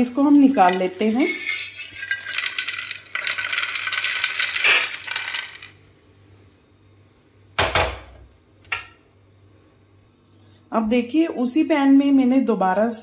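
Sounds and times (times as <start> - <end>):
nuts rattling onto a plate: 0.6 - 5.8.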